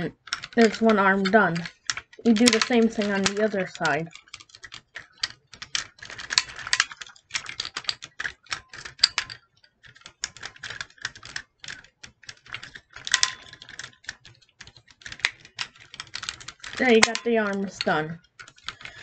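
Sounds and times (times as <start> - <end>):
plastic toy parts clicking: 0.0 - 19.0.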